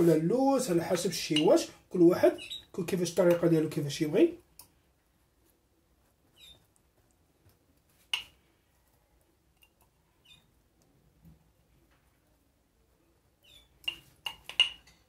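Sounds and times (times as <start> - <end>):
pastry brush clicks and squeaks: 6.3 - 6.9, 13.4 - 15.0.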